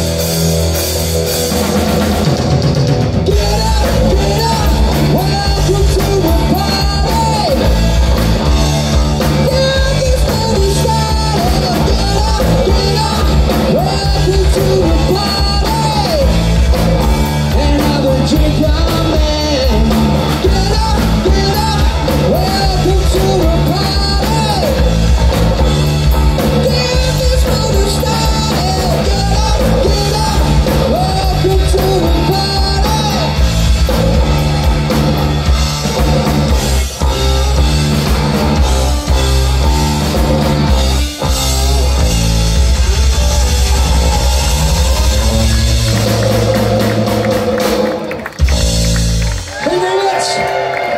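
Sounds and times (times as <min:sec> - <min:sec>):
bass guitar: 0:00.0 - 0:50.9
drum kit: 0:00.0 - 0:50.9
electric guitars: 0:00.0 - 0:50.9
man singing: 0:03.3 - 0:25.4, 0:26.1 - 0:33.5.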